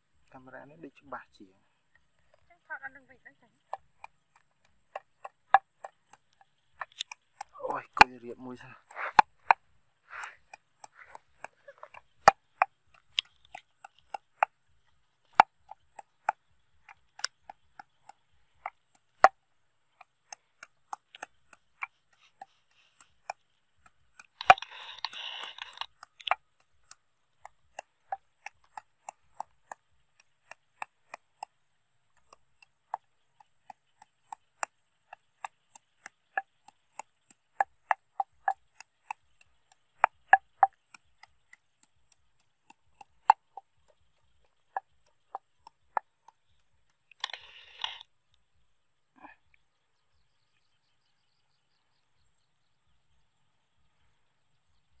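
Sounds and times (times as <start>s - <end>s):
pestle pounding in clay mortar: 3.6s - 14.6s, 15.3s - 19.4s, 20.0s - 31.6s, 32.2s - 46.7s
rustling hiss: 47.1s - 48.1s.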